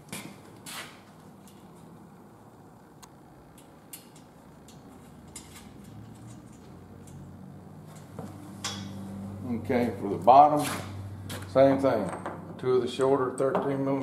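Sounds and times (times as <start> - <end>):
low steady hum: 0.0 - 14.0
small metal clicks: 3.0 - 7.2.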